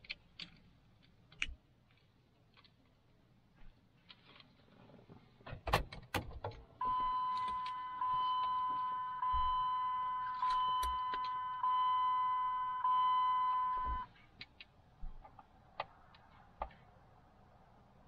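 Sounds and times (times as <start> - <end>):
car warning chime dinging: 6.8 - 14.1.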